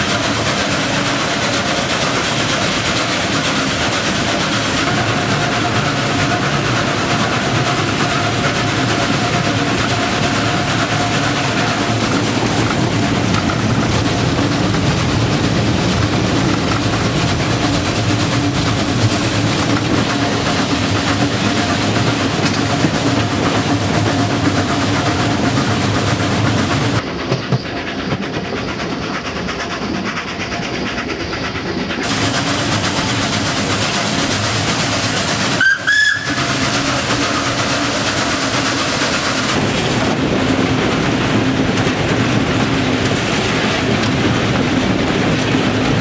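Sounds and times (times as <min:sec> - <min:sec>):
steam locomotive running: 0:00.0 - 0:46.0
train rolling on track: 0:00.0 - 0:46.0
steam whistle blast: 0:35.5 - 0:36.6.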